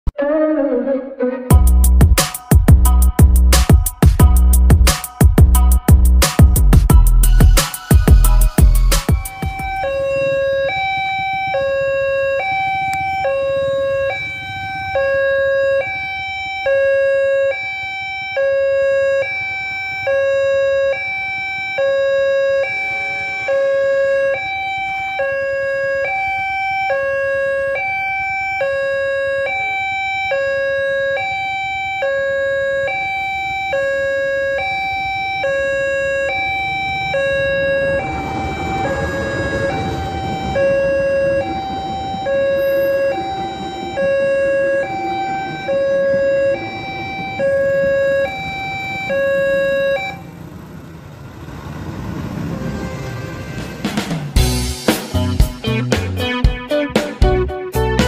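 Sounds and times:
rushing rumbling noise: 35.6s - 56.2s.

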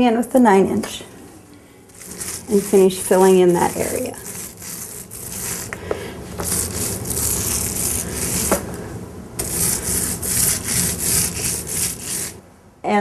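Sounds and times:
paint roller rubbing on wall: 1.9s - 8.7s, 9.4s - 12.4s.

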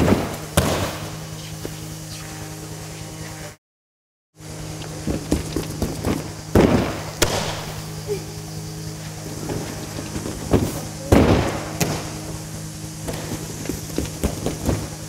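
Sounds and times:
thuds on a crash mat: 0.0s - 1.1s, 10.2s - 12.2s
footfalls on tumbling track: 9.4s - 12.2s.

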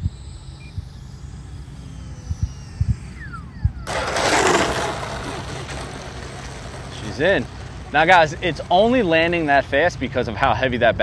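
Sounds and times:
electric jet fan whine: 0.0s - 11.0s
loud rushing noise: 3.9s - 8.1s.

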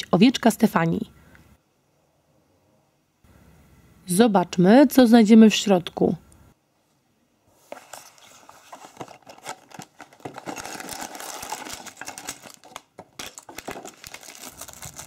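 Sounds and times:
cardboard scraping: 7.6s - 12.6s
plastic crinkling: 7.7s - 15.0s.

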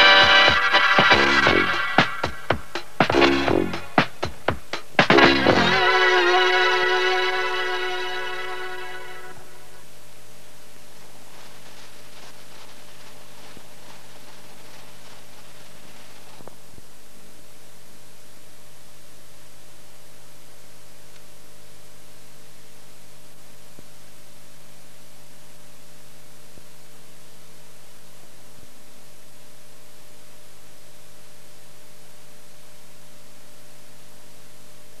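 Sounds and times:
faint steady tones: 0.0s - 35.0s
low mains hum: 0.0s - 35.0s
tape hiss: 0.0s - 35.0s.

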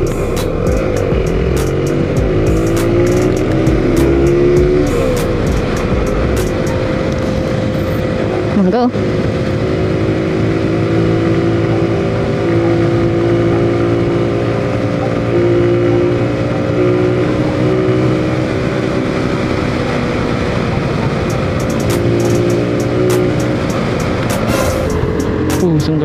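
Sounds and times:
motorcycle engine running: 0.0s - 26.0s
wind and road noise: 0.0s - 26.0s.

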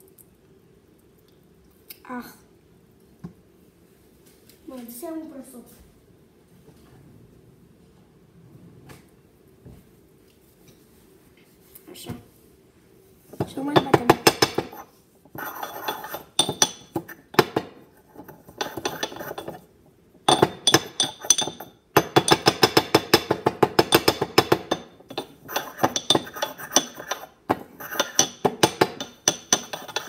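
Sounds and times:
pestle pounding in ceramic mortar: 13.8s - 19.6s, 20.2s - 30.0s.

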